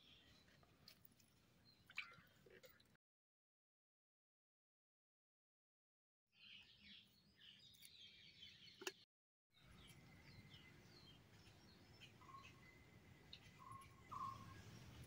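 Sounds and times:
birds chirping: 9.6 - 15.0.

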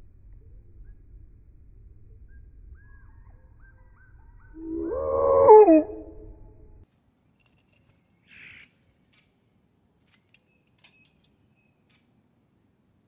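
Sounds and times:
loud animal cry: 4.6 - 6.1.

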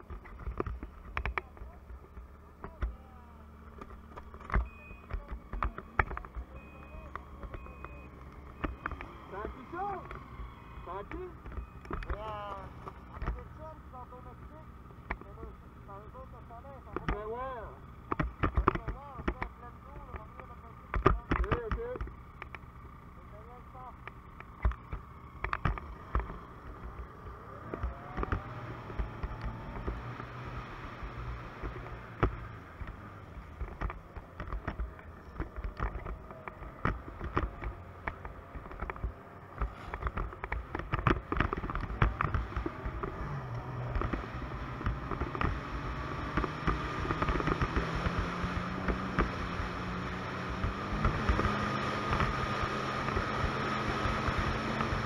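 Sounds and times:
snowmobile engine running: 0.0 - 55.0
thumps from bumps: 18.0 - 22.6, 31.5 - 55.0.

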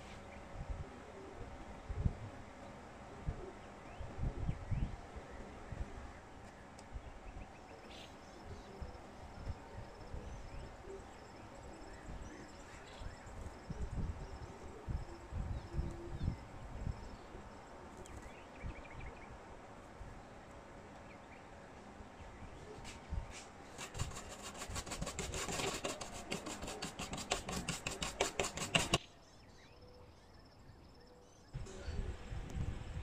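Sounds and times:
rapid rubbing strokes: 23.8 - 29.0.

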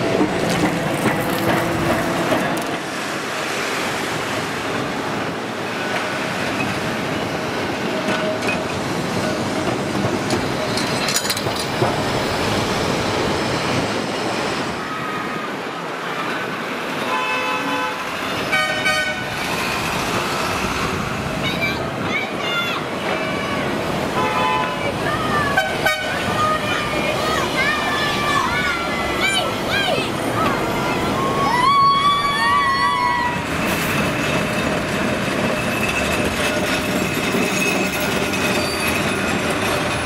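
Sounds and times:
trams rolling on track: 0.0 - 40.0
tram horn toots: 17.0 - 19.4, 23.0 - 26.6.

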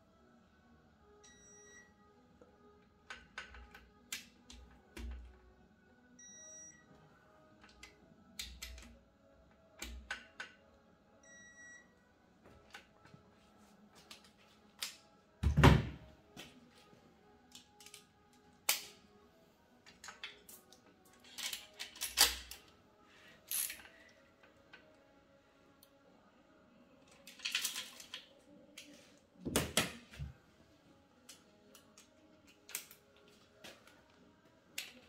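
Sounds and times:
metal tools clicking and knocking: 19.9 - 22.7, 27.1 - 28.2.

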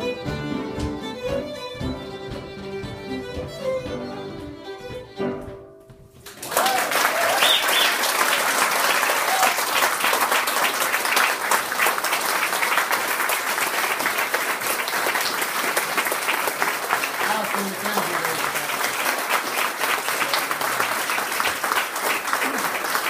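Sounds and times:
fiddle and piano tune: 0.0 - 6.2
audience applause: 6.2 - 23.0.

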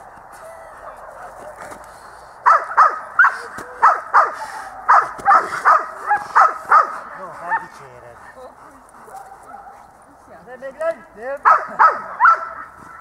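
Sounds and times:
dog barking hard: 2.4 - 7.7, 11.4 - 12.8.

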